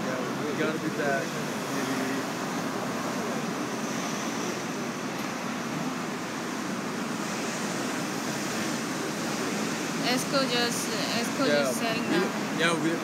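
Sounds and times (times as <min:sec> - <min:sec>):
city street noise: 0:00.0 - 0:13.0.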